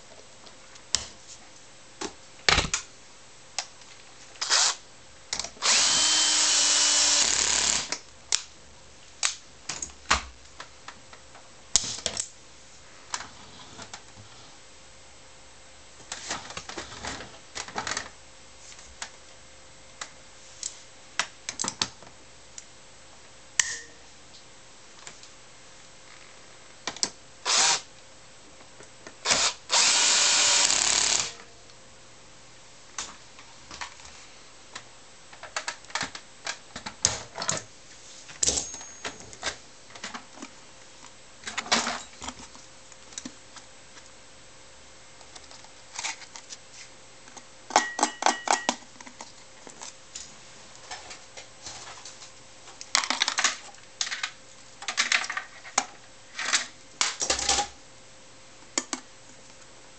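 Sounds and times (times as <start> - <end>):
cordless drill driving screw: 4.4 - 4.8, 5.6 - 8.0, 27.5 - 27.8, 29.2 - 31.4
clicks and rattles of plastic parts: 34.8 - 37.7, 52.7 - 57.7.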